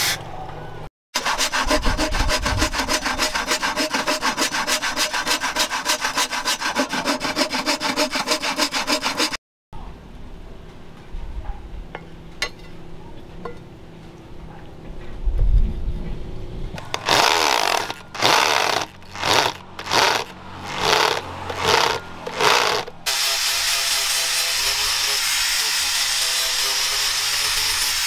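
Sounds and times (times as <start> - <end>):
electric drill driving screw: 16.8 - 23.6
angle grinder running: 16.8 - 28.0.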